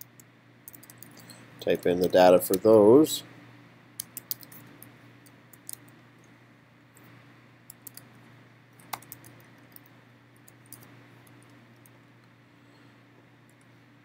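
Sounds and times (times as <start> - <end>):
keystrokes on computer keyboard: 0.0 - 2.6, 4.0 - 4.6, 5.5 - 6.0, 7.7 - 8.1, 8.8 - 12.0
steady low hum: 0.0 - 14.0.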